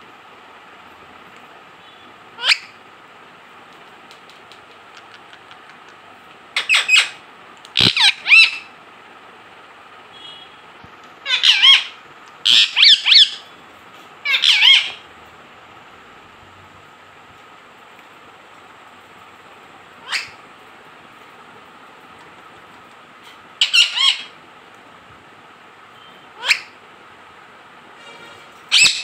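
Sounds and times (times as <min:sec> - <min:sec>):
parakeet shrill squawks: 0:02.4 - 0:02.8, 0:06.6 - 0:07.2, 0:07.8 - 0:08.7, 0:11.2 - 0:13.5, 0:14.2 - 0:15.0, 0:20.0 - 0:20.4, 0:23.6 - 0:24.4, 0:26.3 - 0:26.8, 0:28.6 - 0:29.0.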